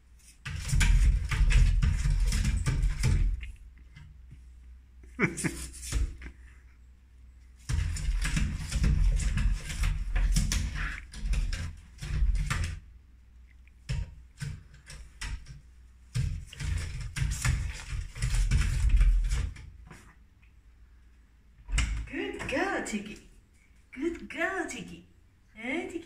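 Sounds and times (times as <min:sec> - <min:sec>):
cat scratching at door: 0:00.2 - 0:04.1, 0:07.6 - 0:12.9, 0:13.8 - 0:20.0
wooden door rattling and knocking: 0:00.5 - 0:03.4.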